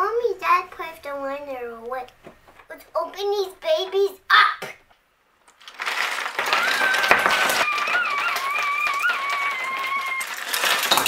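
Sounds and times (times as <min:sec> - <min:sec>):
plastic pieces clattering: 0:05.4 - 0:11.0
child squealing: 0:06.5 - 0:10.7.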